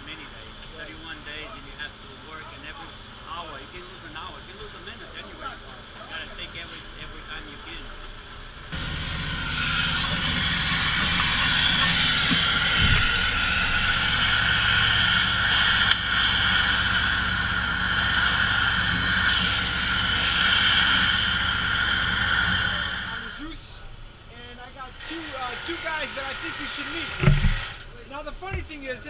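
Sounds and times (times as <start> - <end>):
low hum: 6.3 - 24.3
gas torch hissing: 8.7 - 23.8.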